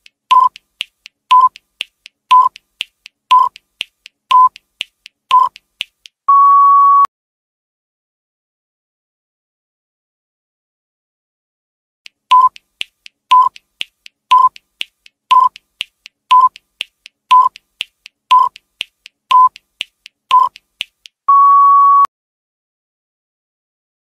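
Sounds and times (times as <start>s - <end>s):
steady timer beep: 0.0s - 0.7s, 1.3s - 1.7s, 2.3s - 2.6s, 3.3s - 3.6s, 4.3s - 4.6s, 5.3s - 5.7s, 6.3s - 7.1s, 12.3s - 12.7s, 13.3s - 13.7s, 14.3s - 14.7s, 15.3s - 15.7s, 16.3s - 16.7s, 17.3s - 17.6s, 18.3s - 18.7s, 19.3s - 19.7s, 20.3s - 20.7s, 21.3s - 22.1s
timer ticking: 0.0s - 6.2s, 12.1s - 21.4s.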